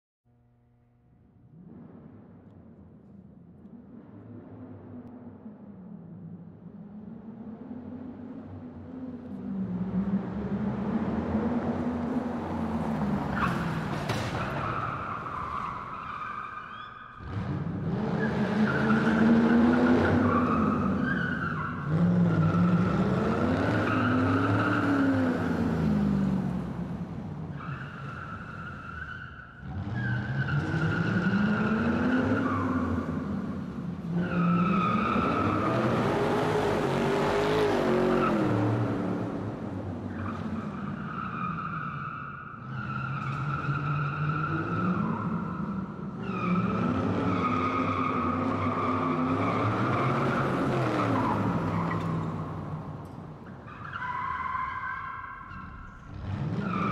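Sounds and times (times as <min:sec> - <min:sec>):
car tyres squealing: 0:12.6 - 0:26.2, 0:27.4 - 0:56.9
car engine revving: 0:17.2 - 0:28.6, 0:29.5 - 0:41.6.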